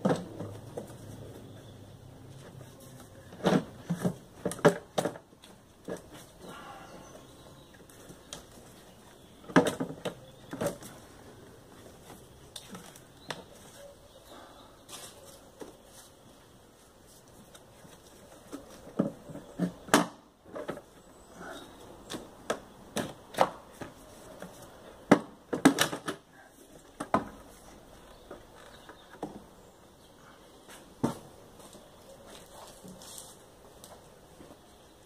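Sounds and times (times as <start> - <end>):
plastic parts clicking and knocking: 3.2 - 6.2, 9.4 - 10.9, 25.1 - 26.3.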